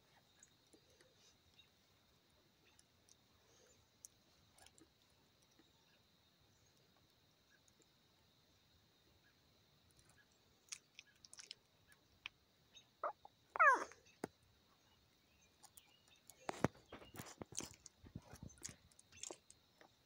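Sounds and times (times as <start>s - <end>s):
puppy squeaking and whimpering: 13.0s - 14.1s.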